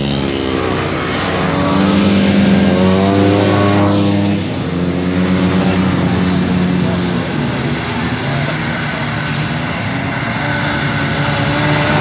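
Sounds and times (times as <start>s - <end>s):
snowmobile engine accelerating past: 0.0s - 6.9s, 9.6s - 12.0s
snowmobile engines running: 0.0s - 12.0s.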